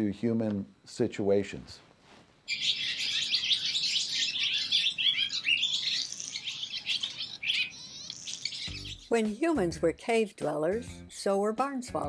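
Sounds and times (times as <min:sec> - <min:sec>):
swallows twittering: 0:02.5 - 0:09.2.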